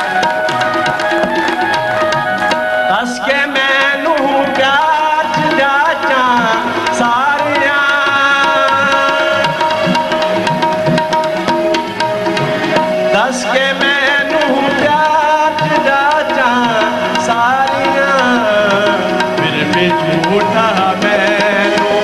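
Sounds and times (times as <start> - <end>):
harmonium notes: 0.0 - 22.0
tabla playing: 0.0 - 22.0
man singing: 2.8 - 10.2, 13.1 - 22.0.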